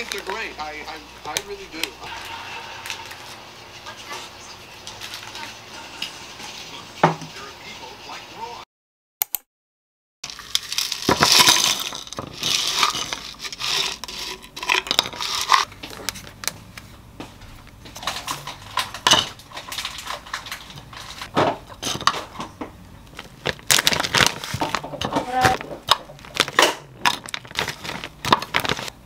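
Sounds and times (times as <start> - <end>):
plastic bag crinkling: 0.0 - 0.6, 10.2 - 16.5, 18.0 - 22.3, 23.0 - 29.0
plastic packaging rustling: 0.0 - 3.4, 4.8 - 5.5, 10.2 - 16.9, 17.5 - 29.0
spoon scraping and clinking: 10.3 - 15.7.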